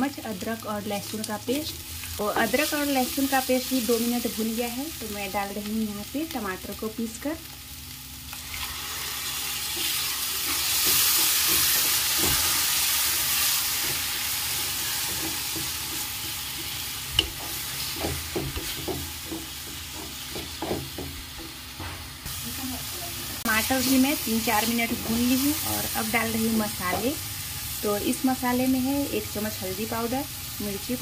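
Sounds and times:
puree sizzling in hot oil: 0:00.0 - 0:20.7, 0:22.2 - 0:31.0.

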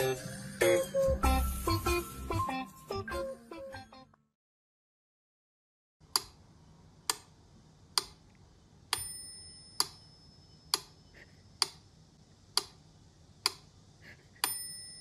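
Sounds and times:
metronome bell dinging: 0:09.0 - 0:10.7, 0:14.4 - 0:15.0.

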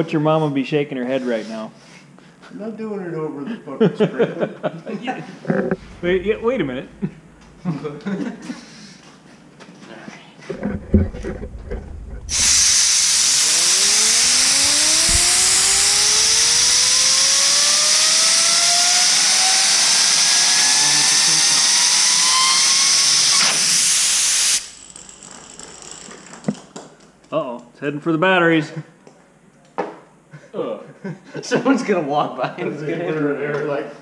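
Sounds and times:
spinning bearing whine: 0:05.5 - 0:07.9, 0:10.6 - 0:26.4
air blow gun hissing: 0:05.8 - 0:07.7, 0:12.3 - 0:24.8.

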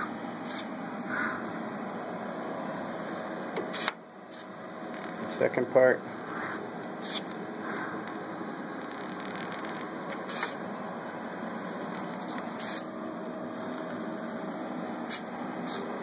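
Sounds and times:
robot arm motors humming: 0:00.0 - 0:16.0.

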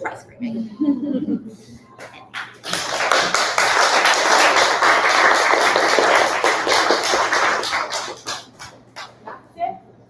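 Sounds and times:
audience applauding: 0:02.4 - 0:08.8.

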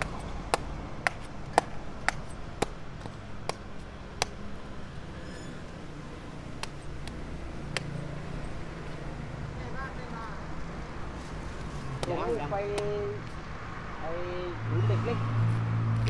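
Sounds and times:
knife chopping fruit: 0:00.0 - 0:04.4, 0:06.6 - 0:08.0
street hum: 0:00.0 - 0:16.0.

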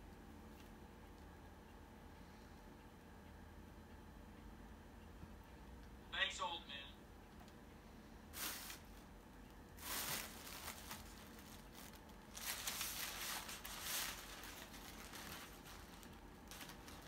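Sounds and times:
plastic bag and paper crinkling: 0:08.4 - 0:09.1, 0:09.8 - 0:17.0.

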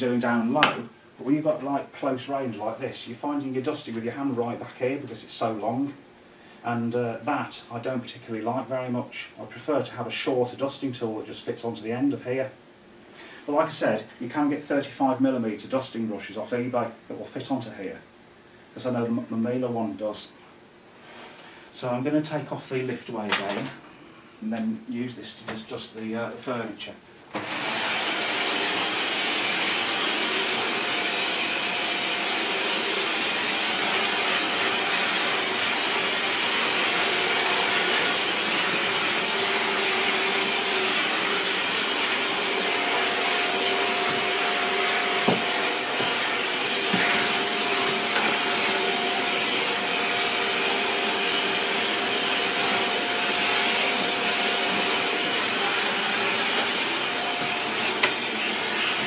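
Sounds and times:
vacuum cleaner running: 0:27.2 - 0:59.0.

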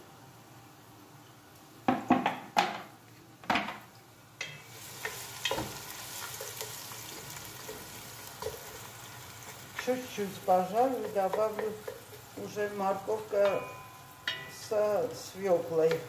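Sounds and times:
onion sizzling in a pot: 0:04.0 - 0:16.0.

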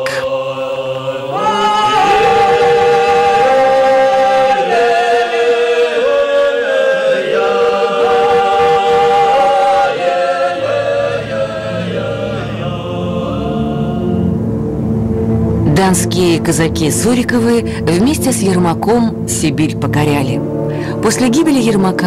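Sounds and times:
choir singing unaccompanied: 0:00.0 - 0:22.0.

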